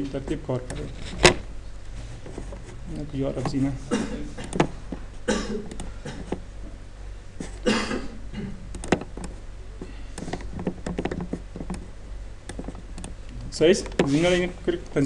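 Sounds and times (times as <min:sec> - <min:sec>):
low electrical hum: 0:00.0 - 0:15.0
computer mouse clicks: 0:04.4 - 0:04.7, 0:05.7 - 0:06.4, 0:08.7 - 0:09.4, 0:10.2 - 0:14.0.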